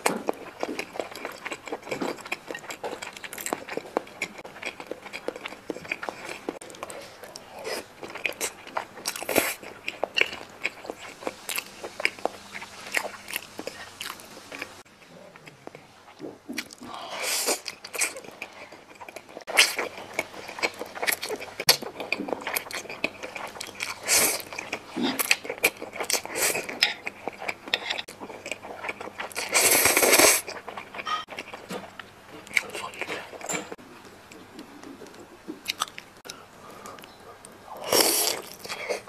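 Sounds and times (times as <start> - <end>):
chewing with clicks and smacks: 0.0 - 16.9, 17.5 - 39.0.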